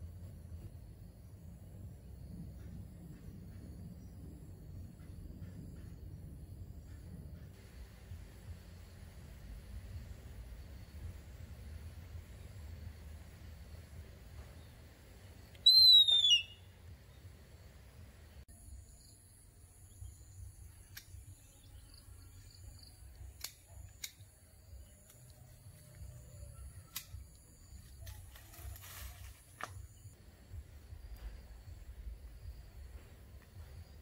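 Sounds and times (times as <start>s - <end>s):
high falling whistle-like call: 15.6s - 16.6s.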